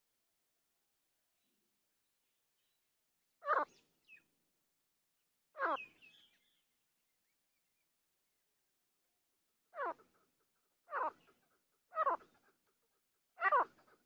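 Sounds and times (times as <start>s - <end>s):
bird giving harsh calls: 10.9s - 11.2s, 13.4s - 13.8s.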